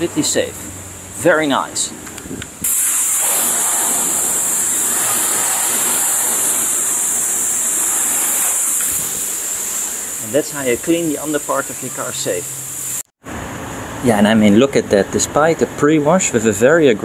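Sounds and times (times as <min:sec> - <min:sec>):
hose water jet splashing on pavement: 0:02.6 - 0:13.1.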